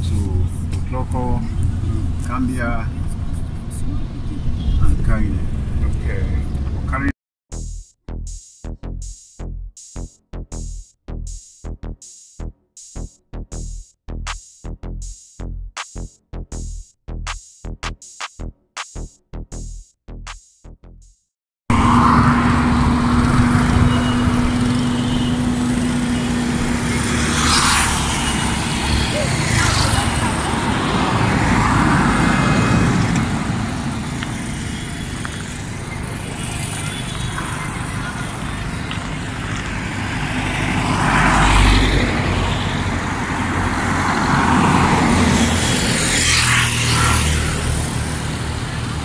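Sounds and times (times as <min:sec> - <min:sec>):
car road and engine noise: 0:00.0 - 0:07.2, 0:21.7 - 0:49.0
vehicle passing: 0:21.7 - 0:49.0.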